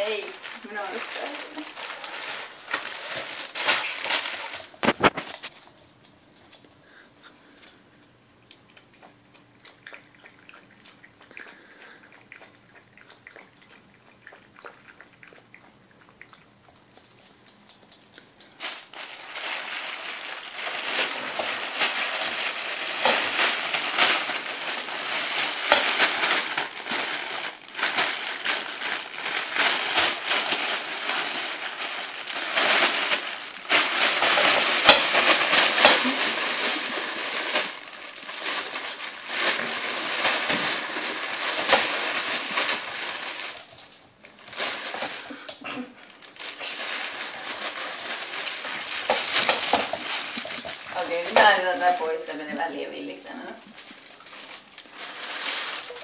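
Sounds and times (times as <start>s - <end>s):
fabric tunnel rustling and crackling: 0.0s - 5.4s, 18.6s - 43.7s, 53.8s - 56.0s.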